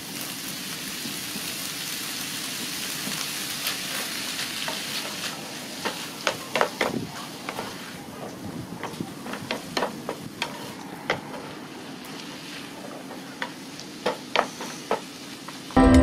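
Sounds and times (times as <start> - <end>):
food sizzling in a frying pan: 0.0 - 15.8
spatula scraping a pan: 8.8 - 11.5, 14.1 - 15.0.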